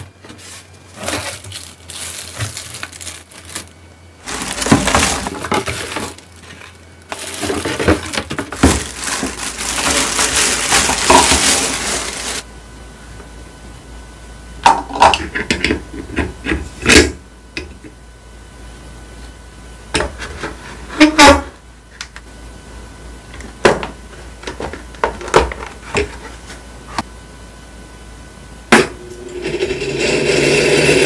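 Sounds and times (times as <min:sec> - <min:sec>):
plastic wrapping crinkling: 0:00.4 - 0:12.5.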